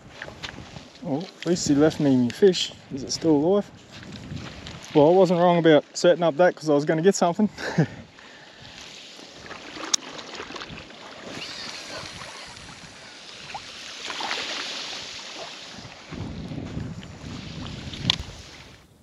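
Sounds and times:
water lapping: 3.7s - 18.8s.

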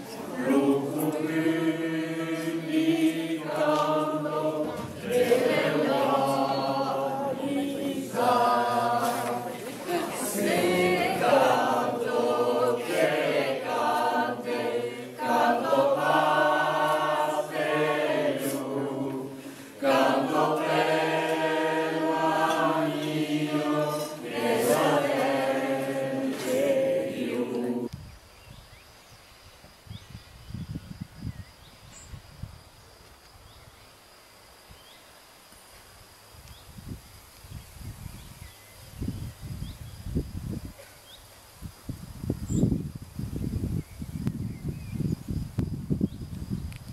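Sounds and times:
choir singing: 0.0s - 27.9s.

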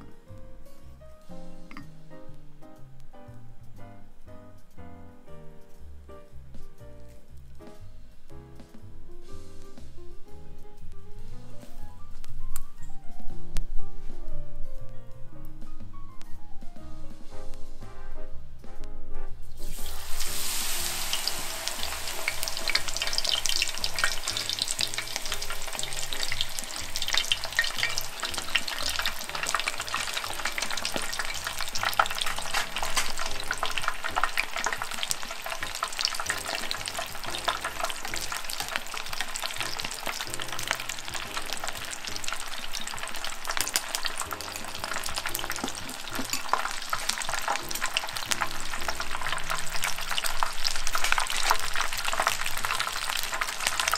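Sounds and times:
batter deep-frying in hot oil: 19.4s - 53.9s.

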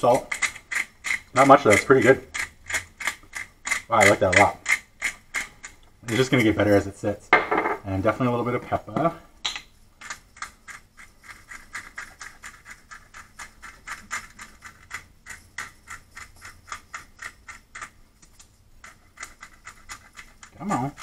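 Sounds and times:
pepper mill grinding: 0.0s - 6.9s, 10.0s - 21.0s.

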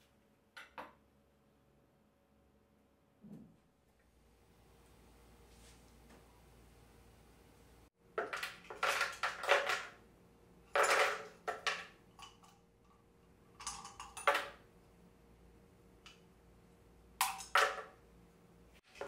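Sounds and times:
ice cubes clattering into blender jar: 8.2s - 10.0s.

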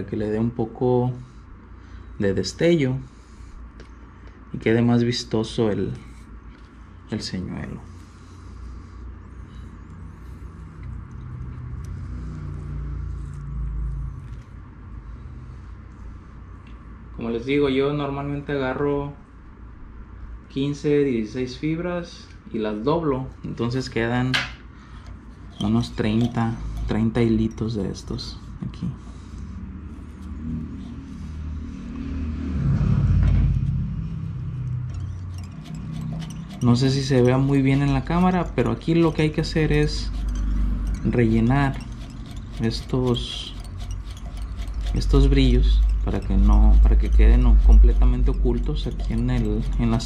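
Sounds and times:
vehicle engine passing: 9.7s - 16.2s, 29.1s - 50.0s
low mechanical rumble: 24.7s - 50.0s.

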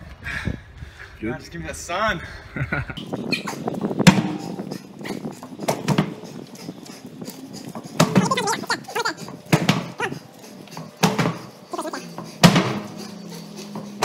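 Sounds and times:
tire knocks and thuds: 3.0s - 8.6s, 9.3s - 10.2s, 10.8s - 14.0s
man straining: 3.2s - 14.0s.

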